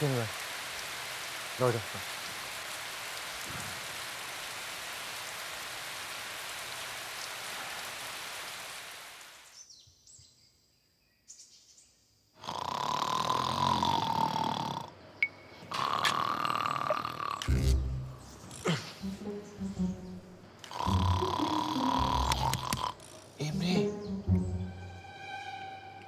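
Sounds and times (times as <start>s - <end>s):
rain falling: 0.0s - 9.6s, 17.1s - 24.8s
loud snore: 12.4s - 14.9s, 15.7s - 17.7s, 20.6s - 23.2s.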